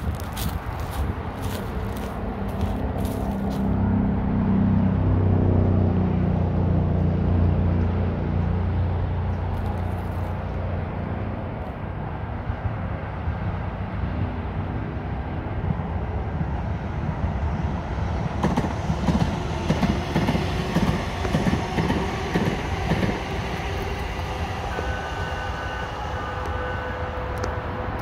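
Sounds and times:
light rail train passing: 0:00.0 - 0:28.0
wheels clacking over rail joints: 0:18.2 - 0:25.0.

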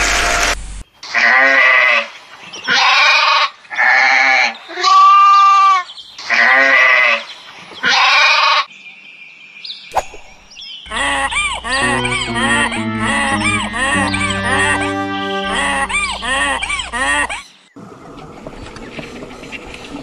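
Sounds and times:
sheep bleating: 0:12.4 - 0:17.3.

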